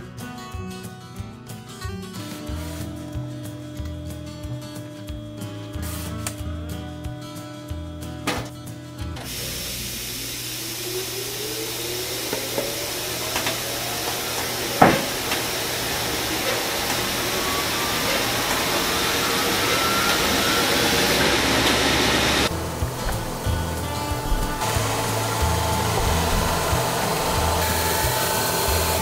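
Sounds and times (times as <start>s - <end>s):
belt sander whining: 10.1s - 29.0s.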